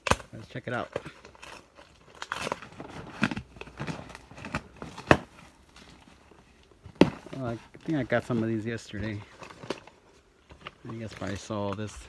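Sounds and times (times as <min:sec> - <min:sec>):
sharp cardboard snaps: 0:00.0 - 0:05.4
packing tape cut and pulled: 0:00.0 - 0:05.7
cardboard scraping and crackling: 0:00.0 - 0:12.0.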